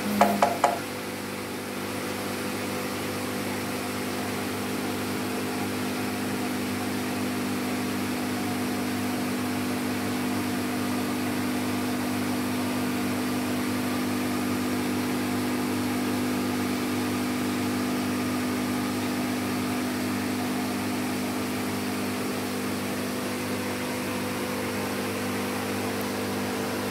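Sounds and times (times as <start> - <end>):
air pump humming and hissing: 0.0 - 1.1.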